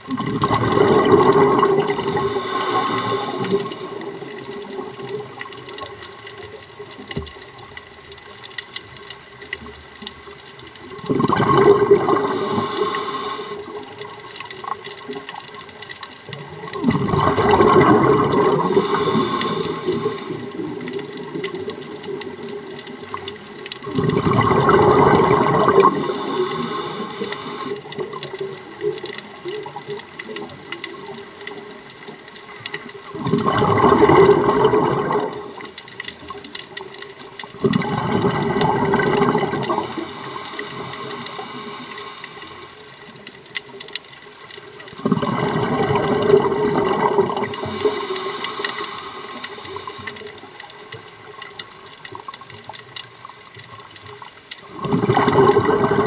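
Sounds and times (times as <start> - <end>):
exhaled bubbles rushing: 0.0 - 7.5, 10.2 - 32.2, 33.0 - 43.2, 44.8 - 51.5, 54.6 - 56.0
diver inhaling through regulator: 1.3 - 4.5, 11.5 - 13.9, 17.3 - 20.9, 24.2 - 27.9, 37.8 - 42.8, 47.4 - 50.0.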